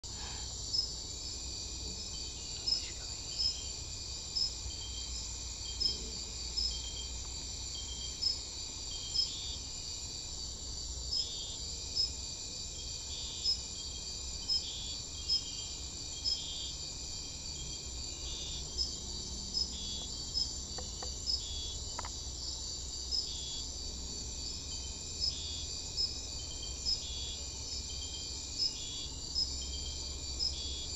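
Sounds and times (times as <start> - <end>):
low drawn-out insect buzz: 0.0 - 30.9
sharp cricket chirps: 0.0 - 30.9
high insect trill: 0.1 - 30.9.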